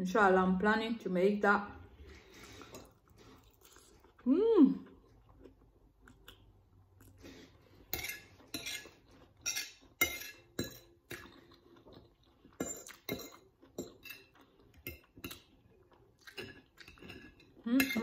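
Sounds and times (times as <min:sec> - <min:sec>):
cutlery clinking on a plate: 0:07.9 - 0:10.9.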